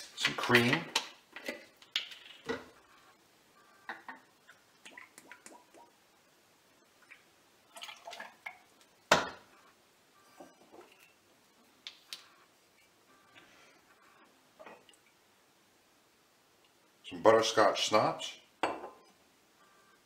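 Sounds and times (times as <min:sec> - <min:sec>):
liquid pouring into glass: 0:07.1 - 0:08.6
glass and bottles clinking: 0:18.6 - 0:19.1.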